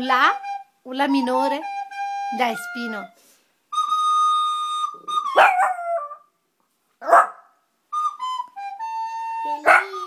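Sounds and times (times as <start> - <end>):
dog yelp: 5.2 - 6.3, 7.0 - 7.5, 9.6 - 10.0.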